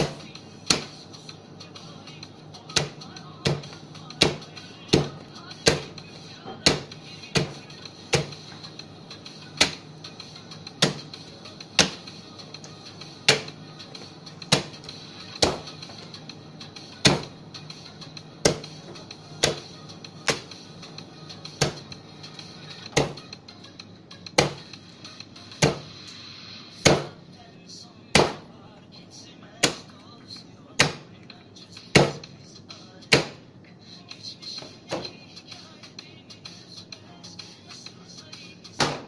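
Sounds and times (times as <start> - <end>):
cleaver chopping meat on a board: 0.0 - 1.0, 2.7 - 6.0, 6.6 - 8.4, 9.6 - 9.9, 10.7 - 12.1, 13.2 - 13.6, 14.4 - 15.8, 17.0 - 17.3, 18.4 - 18.8, 19.4 - 20.6, 21.5 - 21.9, 22.9 - 23.2, 24.4 - 24.7, 25.6 - 25.9, 26.8 - 27.2, 28.1 - 28.5, 29.6 - 29.9, 30.8 - 31.1, 31.9 - 32.3, 33.1 - 33.4, 38.8 - 39.0
background music: 0.0 - 39.0.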